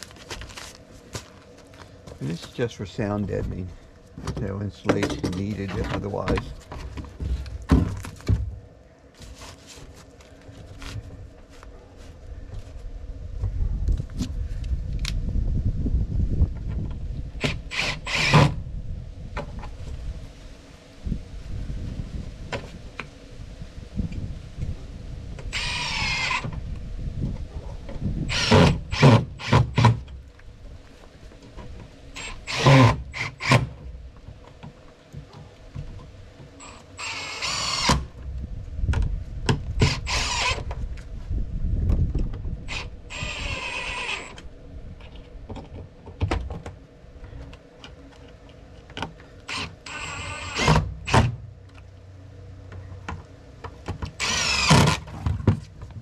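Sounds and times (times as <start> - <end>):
cordless drill driving screws: 17.4 - 18.6, 25.5 - 26.5, 28.3 - 30.0, 32.2 - 33.7, 36.6 - 38.1, 39.8 - 40.6, 42.7 - 44.4, 49.5 - 51.4, 54.2 - 55.1.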